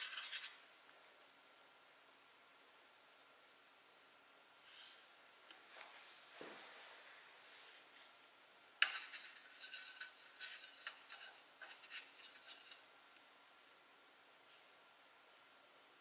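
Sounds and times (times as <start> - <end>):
drawing tool scratching paper: 0.0 - 0.6, 8.8 - 12.9.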